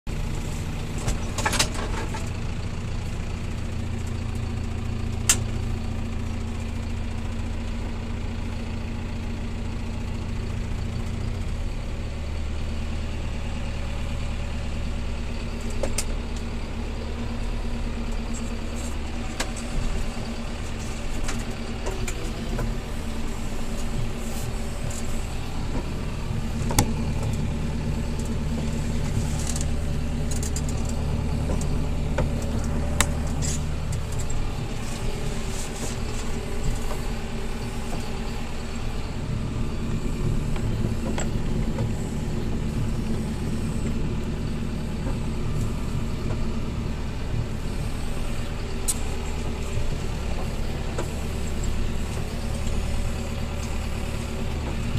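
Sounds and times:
tractor diesel engine running: 0:00.0 - 0:54.9
rattles and knocks: 0:00.9 - 0:02.5.

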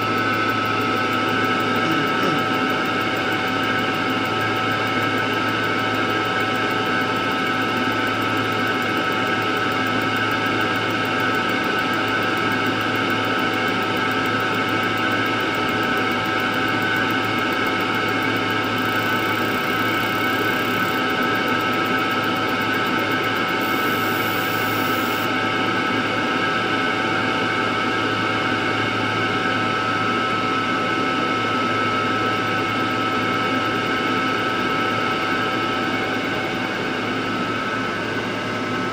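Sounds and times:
machine hum: 0:00.0 - 0:04.6.

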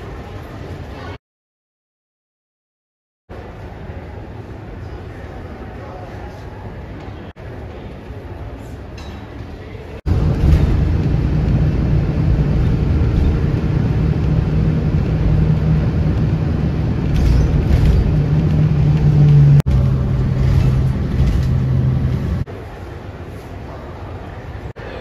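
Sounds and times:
vehicle engine and road drone: 0:10.1 - 0:23.0.

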